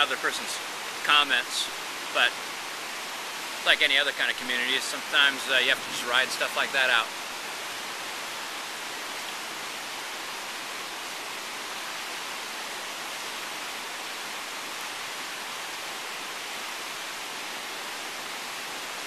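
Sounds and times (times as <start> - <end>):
steady rushing noise: 3.2 - 8.6.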